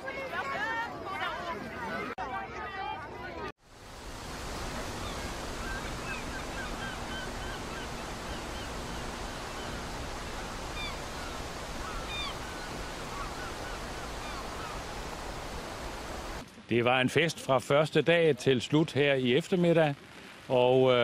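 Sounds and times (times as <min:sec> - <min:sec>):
water on open water: 0:00.0 - 0:16.4
wind: 0:00.0 - 0:21.0
birds calling: 0:04.4 - 0:16.4.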